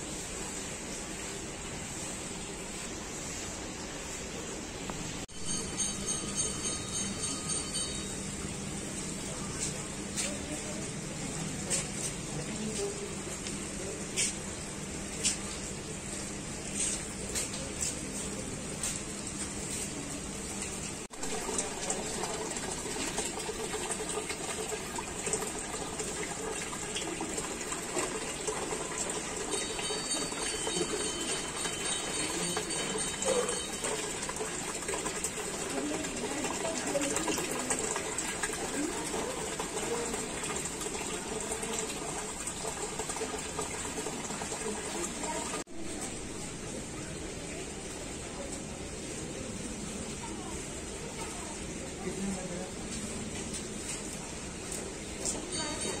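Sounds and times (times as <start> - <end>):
aquarium water bubbling: 20.3 - 52.5.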